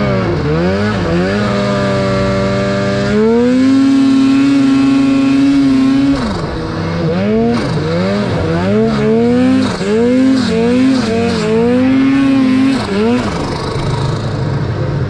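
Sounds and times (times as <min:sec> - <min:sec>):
snowmobile engine revving: 0:00.0 - 0:15.0.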